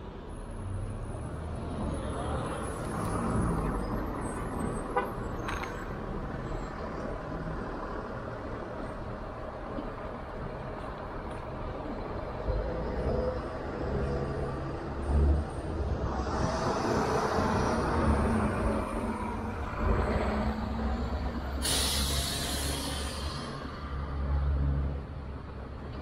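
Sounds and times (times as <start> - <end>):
street traffic: 0.0 - 26.0
air brakes hissing: 21.5 - 23.8.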